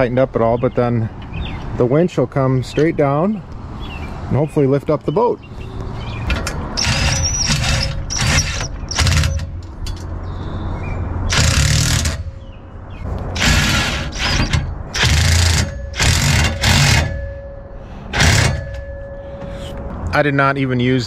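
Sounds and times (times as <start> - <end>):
cordless driver tightening bolts: 6.2 - 10.1, 11.3 - 12.4, 13.4 - 17.2, 18.1 - 18.8.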